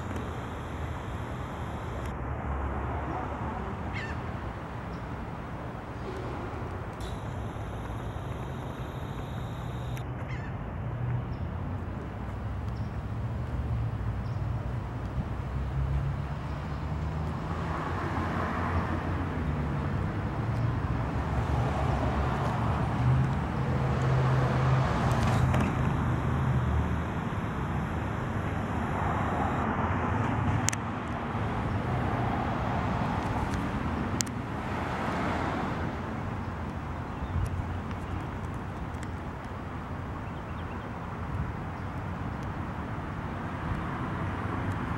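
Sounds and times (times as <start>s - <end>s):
sharp clicks: 0.0s - 2.2s, 6.0s - 10.1s
road traffic rumble: 0.0s - 44.9s.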